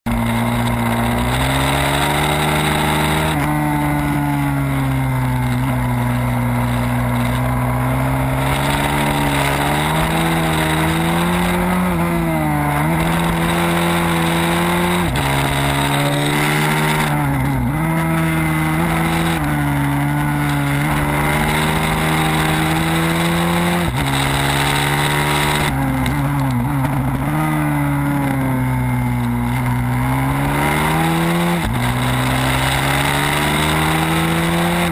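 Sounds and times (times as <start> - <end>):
motorcycle engine revving hard: 0.1 - 34.9.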